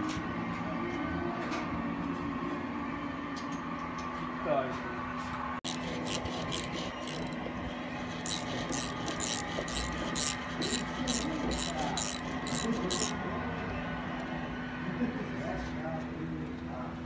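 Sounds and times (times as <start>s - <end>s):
hand file rasping on metal: 5.6s - 13.2s.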